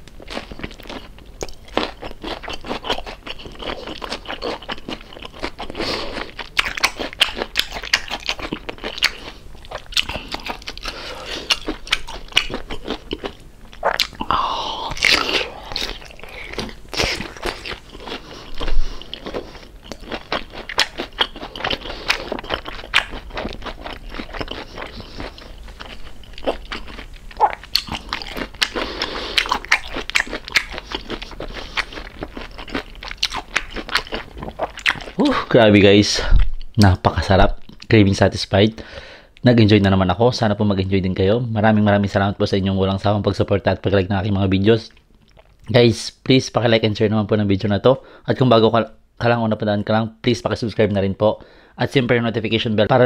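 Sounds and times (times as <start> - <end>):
crunching crispy food: 0.0 - 35.3.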